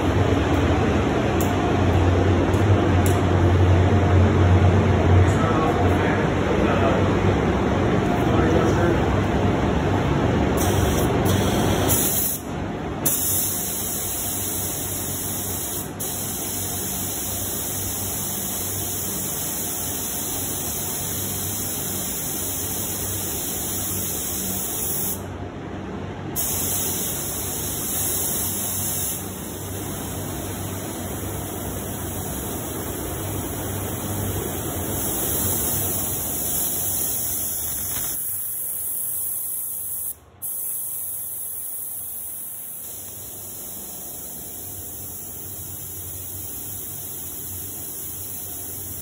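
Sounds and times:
spray gun hissing: 10.6s - 12.4s, 13.0s - 25.2s, 26.4s - 49.0s.

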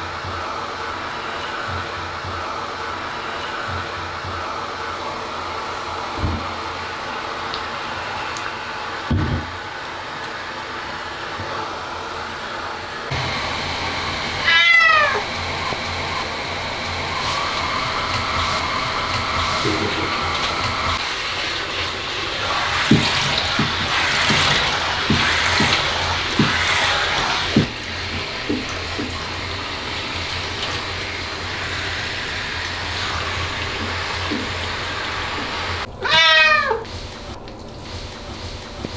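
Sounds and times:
shower spraying water: 0.0s - 38.9s
steady rushing noise: 15.2s - 27.7s.

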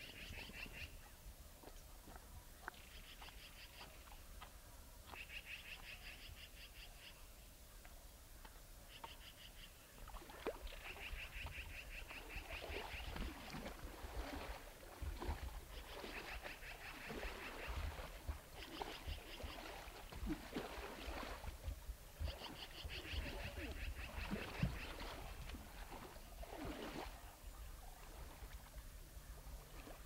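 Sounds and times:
moose splashing in water: 10.0s - 27.2s.

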